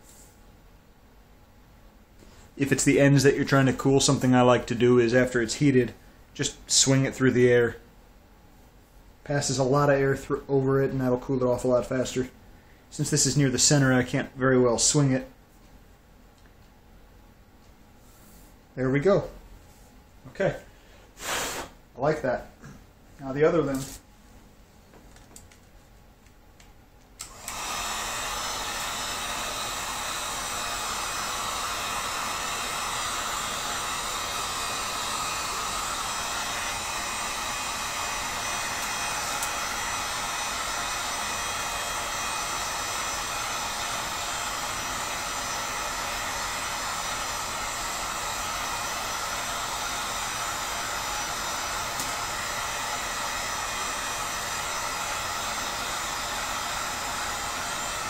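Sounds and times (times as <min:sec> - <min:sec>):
heat gun fan blowing: 0:20.4 - 0:22.4, 0:27.0 - 0:58.0.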